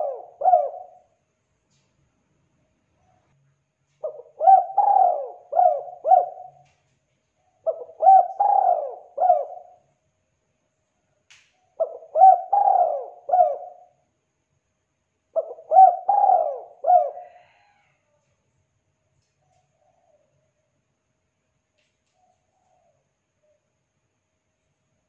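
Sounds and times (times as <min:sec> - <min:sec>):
dove cooing: 0:00.0 - 0:01.1, 0:04.0 - 0:09.8, 0:11.8 - 0:14.0, 0:15.4 - 0:17.9.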